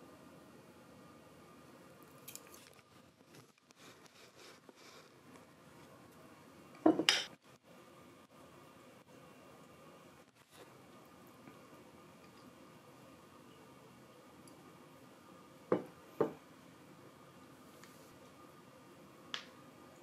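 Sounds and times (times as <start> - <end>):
tableware clatter: 6.8 - 7.3.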